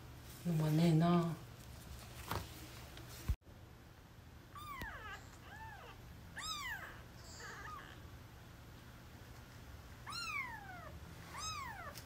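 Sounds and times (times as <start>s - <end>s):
kittens mewing: 4.6s - 8.1s, 10.0s - 12.0s.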